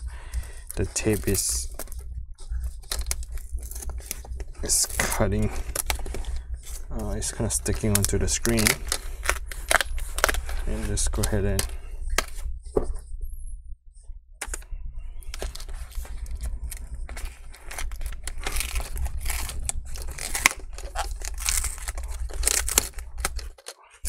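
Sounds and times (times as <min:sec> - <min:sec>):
adhesive tape tearing crackles: 0:02.8 - 0:12.4, 0:15.3 - 0:23.9.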